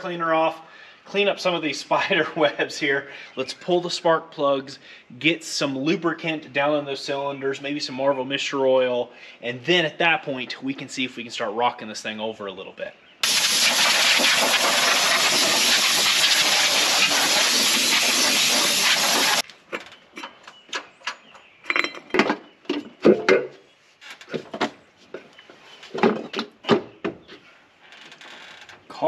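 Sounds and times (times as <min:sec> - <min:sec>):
loud steady hiss: 0:13.2 - 0:19.4
small metallic clicks and knocks: 0:19.4 - 0:23.5.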